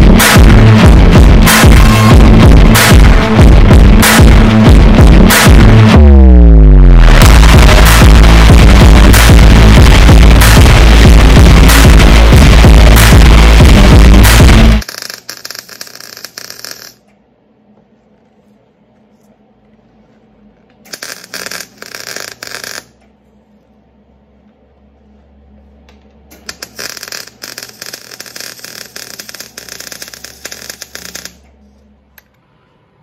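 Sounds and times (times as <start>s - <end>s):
welding arc crackling: 7.1s - 17.0s, 20.9s - 23.0s, 26.3s - 31.4s.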